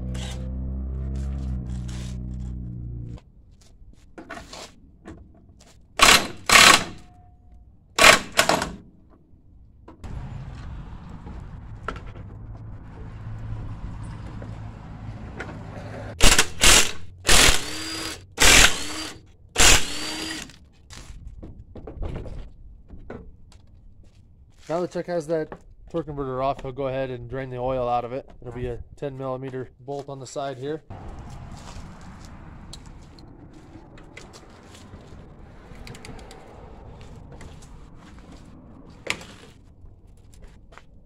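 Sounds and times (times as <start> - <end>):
impact wrench bursts: 6.0 - 7.0, 8.0 - 8.6, 16.2 - 20.6.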